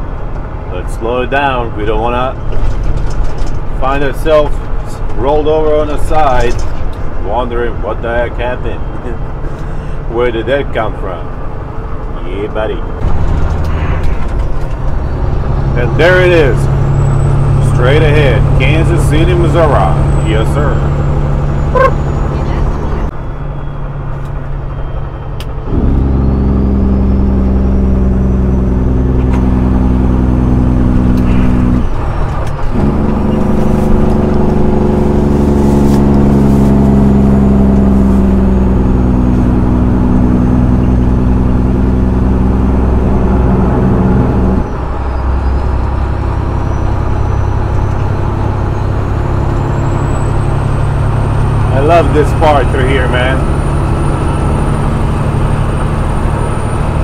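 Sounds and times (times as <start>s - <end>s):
low engine drone: 0.0s - 57.0s
road noise: 0.0s - 57.0s
truck engine brake: 13.0s - 57.0s.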